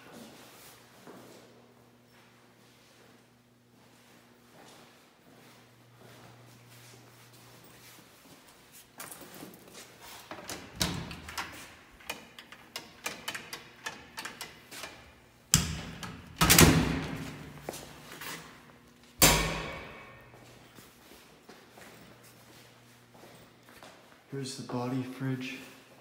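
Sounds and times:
metal door slamming: 0:15.6 - 0:17.5, 0:19.2 - 0:20.3
metal cabinet door banging: 0:19.2 - 0:20.2.

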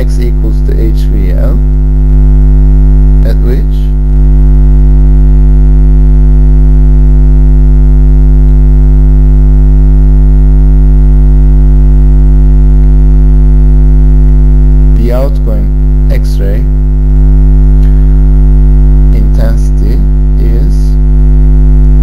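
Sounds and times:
electrical mains hum: 0:00.0 - 0:22.0.

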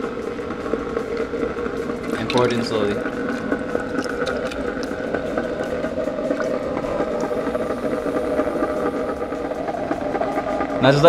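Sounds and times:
ice cream maker motor humming: 0:00.0 - 0:11.0.

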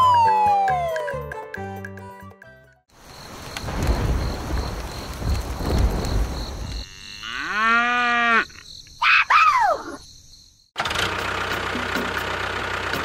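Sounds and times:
cow mooing: 0:06.8 - 0:08.5.

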